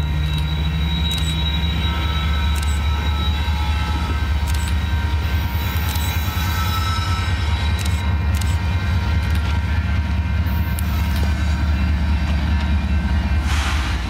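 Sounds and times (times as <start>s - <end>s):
locomotive engine rumble: 0.0s - 14.0s
sharp clicks: 7.8s - 8.6s.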